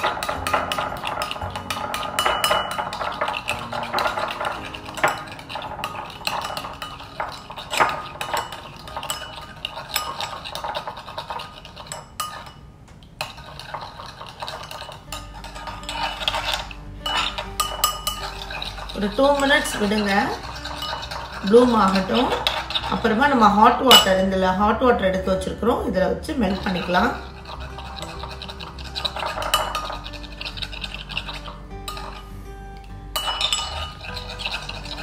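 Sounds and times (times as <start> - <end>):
metal spoon stirring in bowl: 0.0 - 24.4, 26.4 - 35.0.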